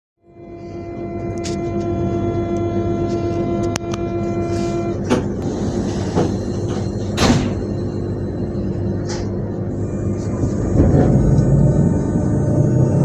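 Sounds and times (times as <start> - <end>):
electric train whine: 0.2 - 13.0.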